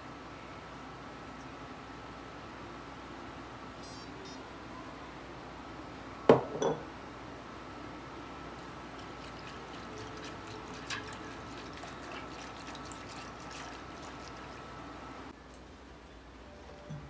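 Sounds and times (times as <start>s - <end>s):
faint high whine: 0.0s - 6.4s
whisk stirring liquid in a saucepan: 8.8s - 14.8s.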